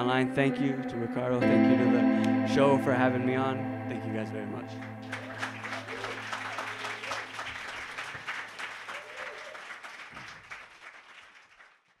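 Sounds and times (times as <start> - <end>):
music: 0.0 - 7.0
audience applauding and cheering: 5.0 - 11.8.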